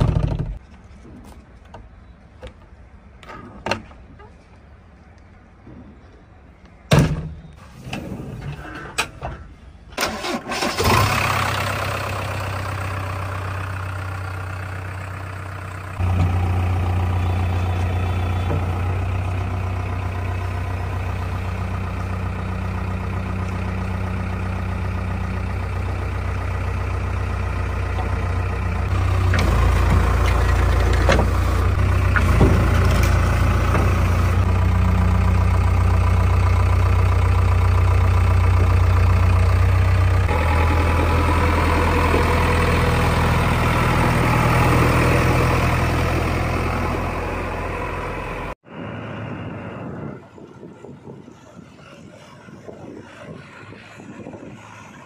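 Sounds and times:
diesel engine idling: 10.1s - 50.3s.

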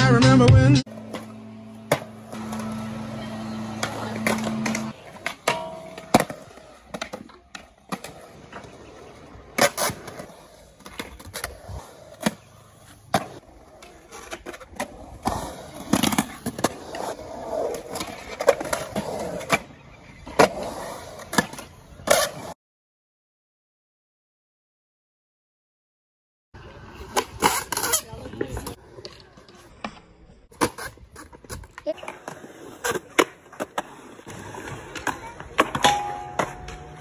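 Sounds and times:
skateboard wheels rolling on concrete: 0.0s - 22.6s, 26.6s - 37.0s
skateboard clacks and slaps: 27.0s - 37.0s.

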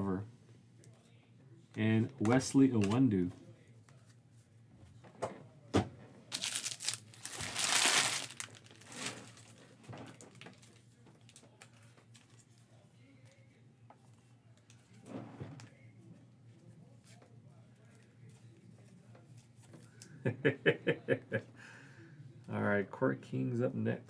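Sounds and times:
plastic wrapping crinkling: 6.3s - 12.3s.

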